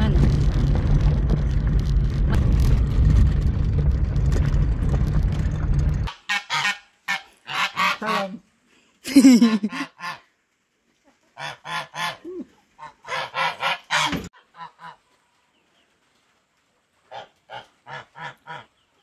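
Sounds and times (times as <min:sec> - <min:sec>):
geese honking: 0:06.1 - 0:08.4, 0:11.4 - 0:12.2, 0:12.8 - 0:15.0.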